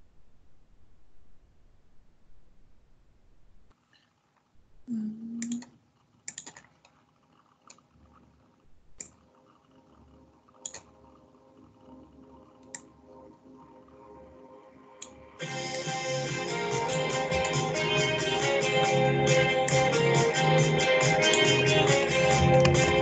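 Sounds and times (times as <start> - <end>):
mouse and keyboard clicks: 6.3 - 6.9, 10.6 - 10.9.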